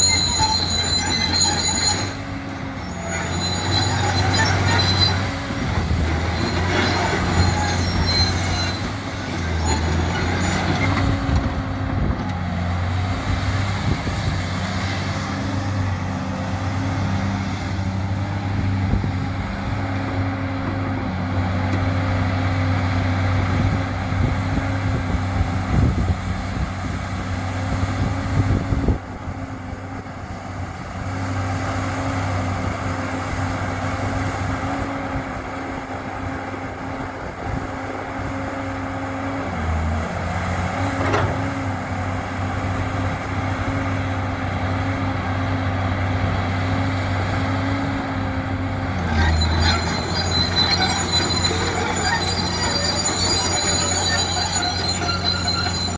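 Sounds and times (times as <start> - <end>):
steel tracks squealing: 0.0 - 13.2, 47.4 - 55.9
excavator engine and hydraulics: 0.0 - 55.9.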